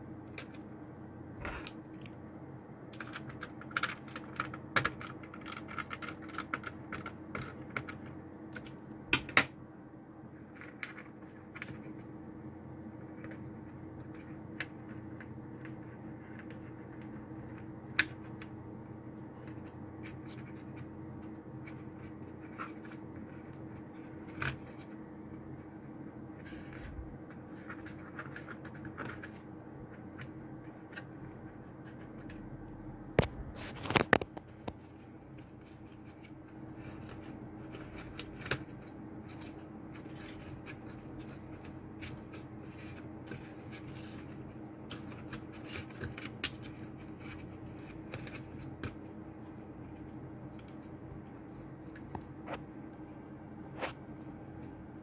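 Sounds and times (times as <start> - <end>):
steady low hum: 0.0 - 55.0
small clicks and scrapes: 2.9 - 9.5, 10.3 - 12.1, 12.8 - 18.6, 19.2 - 32.4, 33.2 - 53.0.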